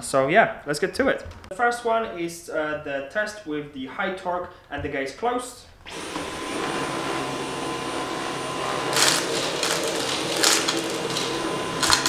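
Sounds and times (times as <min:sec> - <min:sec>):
vacuum cleaner whining: 0:05.9 - 0:12.0.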